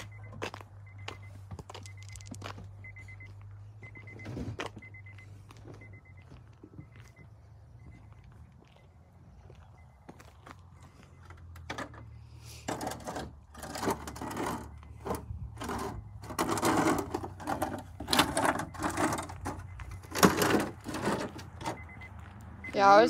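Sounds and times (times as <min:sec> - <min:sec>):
plastic crate scraping over asphalt: 0:12.7 - 0:21.8.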